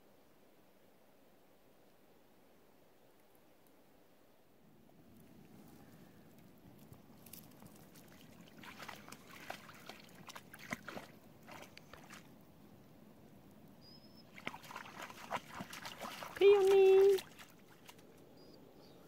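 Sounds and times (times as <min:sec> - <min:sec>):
water splashing and sloshing: 0:06.8 - 0:12.7, 0:14.2 - 0:18.4.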